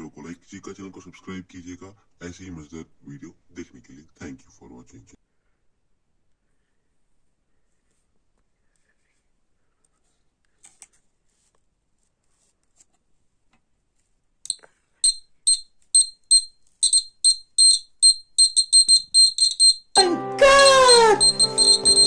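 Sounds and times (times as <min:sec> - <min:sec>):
buzzer high-pitched beeps: 0:15.0 - 0:20.0, 0:20.8 - 0:22.0.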